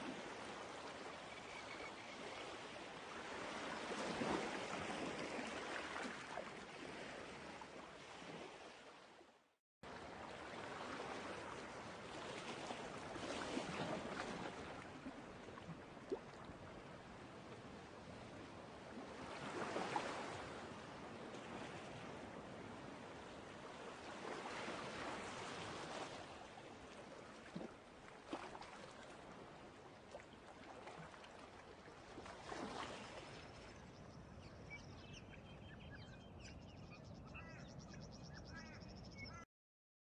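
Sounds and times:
birds chirping: 0:33.4 - 0:39.4.

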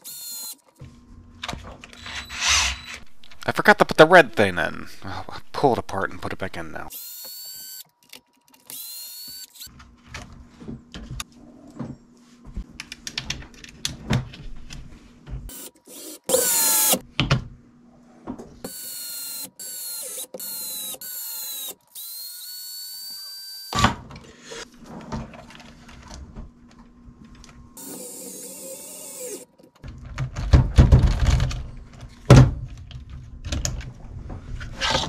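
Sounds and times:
electric screwdriver whining: 0:00.0 - 0:00.7, 0:02.0 - 0:03.0, 0:06.9 - 0:07.9, 0:08.6 - 0:09.7, 0:15.5 - 0:17.0, 0:18.7 - 0:23.8, 0:27.8 - 0:29.5.

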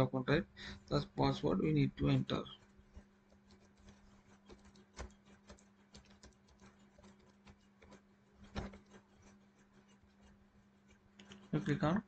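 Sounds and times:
steady low hum: 0:00.0 - 0:12.0
keyboard typing: 0:02.6 - 0:11.6.

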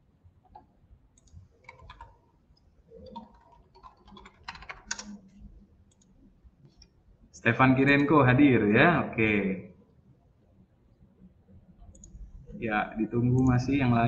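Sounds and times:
faint keyboard typing: 0:00.4 - 0:07.0, 0:11.8 - 0:12.3, 0:13.0 - 0:14.0.

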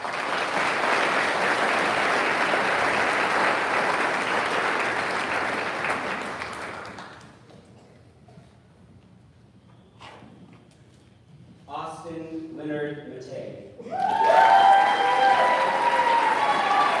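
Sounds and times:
audience applauding: 0:00.0 - 0:07.4, 0:13.9 - 0:17.0.

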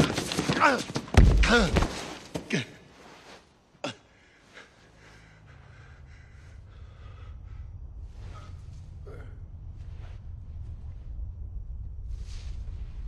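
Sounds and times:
low steady hum: 0:03.8 - 0:13.0
man panting: 0:04.0 - 0:09.5.

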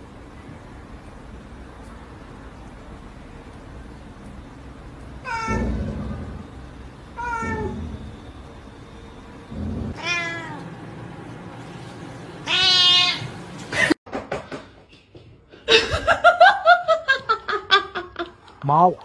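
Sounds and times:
cat meowing: 0:05.2 - 0:06.0, 0:07.2 - 0:07.9, 0:09.9 - 0:10.6, 0:12.4 - 0:13.4.

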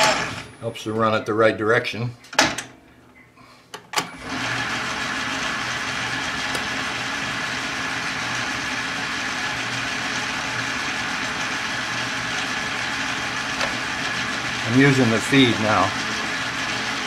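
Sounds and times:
metal lathe humming and whining: 0:04.2 - 0:17.0.

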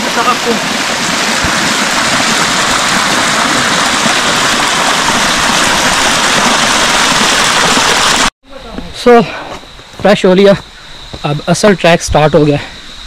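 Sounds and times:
spring water rushing: 0:00.0 - 0:08.3.

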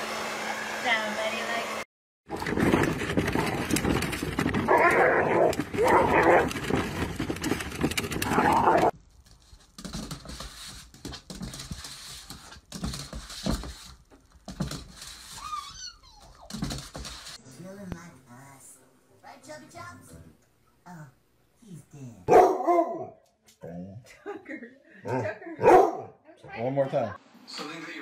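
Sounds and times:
plastic bin rolling over gravel: 0:02.3 - 0:08.9
dog barking: 0:22.3 - 0:23.2, 0:25.1 - 0:26.2.

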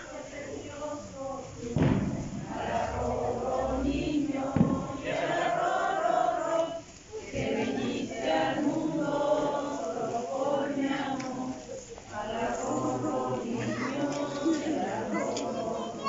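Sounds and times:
group of voices singing: 0:00.0 - 0:16.0
sharp knock: 0:04.6 - 0:04.9.

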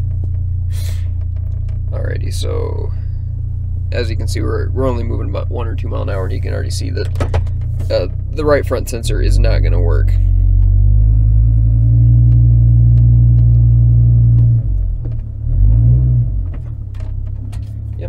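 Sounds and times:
truck engine rumbling: 0:00.0 - 0:18.0.

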